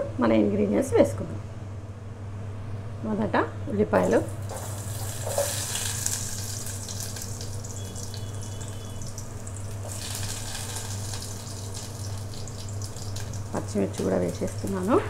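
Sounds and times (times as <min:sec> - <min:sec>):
onions sizzling in oil: 0:04.0 - 0:15.0.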